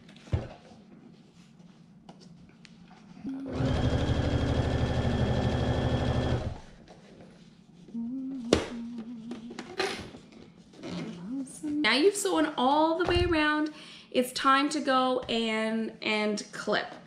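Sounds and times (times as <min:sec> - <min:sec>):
electric sewing machine stitching: 0:03.3 - 0:06.8
soft hum: 0:06.7 - 0:12.1.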